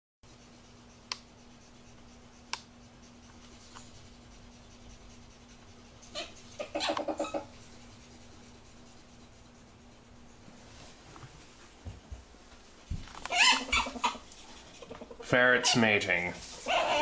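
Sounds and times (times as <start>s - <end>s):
steady low hum: 0.3s - 17.0s
ferret calling: 6.1s - 7.5s, 13.3s - 14.2s, 16.6s - 17.0s.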